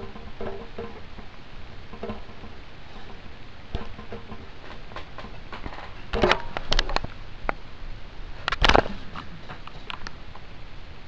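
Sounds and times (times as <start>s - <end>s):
steady hiss: 0.0s - 11.0s.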